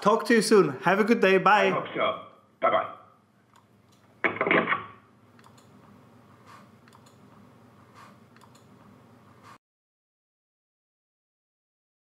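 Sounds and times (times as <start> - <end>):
computer clicks: 3.5 - 5.7, 6.8 - 7.2, 8.3 - 8.7.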